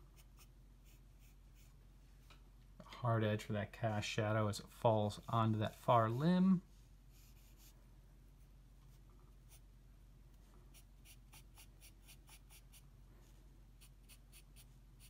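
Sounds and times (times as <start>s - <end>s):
low room hum: 0.0s - 15.0s
pencil scratching on paper: 10.7s - 12.8s, 13.8s - 14.8s.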